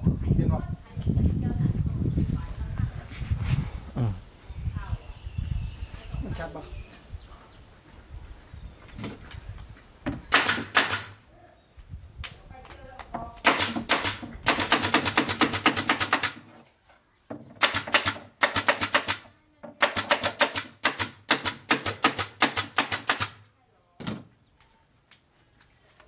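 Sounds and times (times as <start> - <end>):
pneumatic nail gun firing: 10.3 - 11.2, 13.4 - 16.5, 17.6 - 19.2, 19.8 - 23.4.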